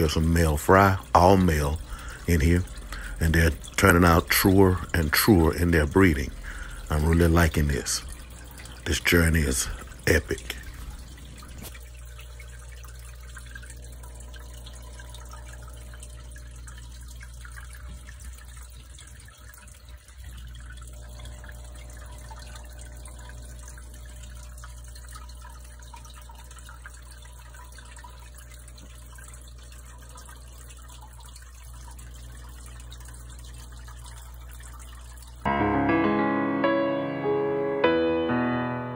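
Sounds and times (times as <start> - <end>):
tank filter hum: 0.0 - 35.5
water trickling and dripping: 0.0 - 35.5.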